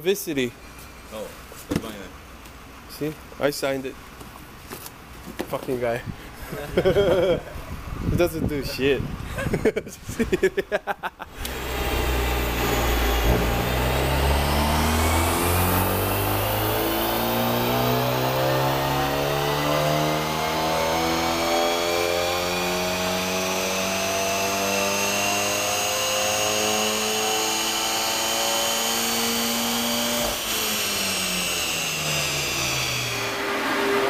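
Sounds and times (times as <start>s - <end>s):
car engine at full throttle: 11.3s - 34.0s
high whine: 11.3s - 34.0s.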